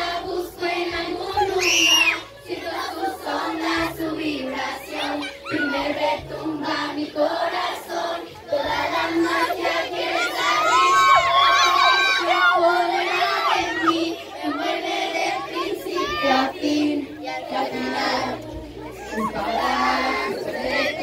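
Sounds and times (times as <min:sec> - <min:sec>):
crowd singing along: 0:00.0 - 0:21.0
fans screaming: 0:10.1 - 0:14.6
girl singing over music: 0:12.1 - 0:21.0.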